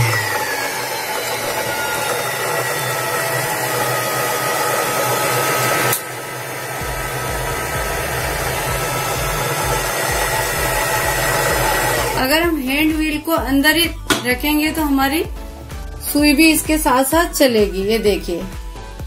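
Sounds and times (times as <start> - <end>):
sewing machine motor whirring: 0.0 - 12.3
low hum: 6.7 - 12.6.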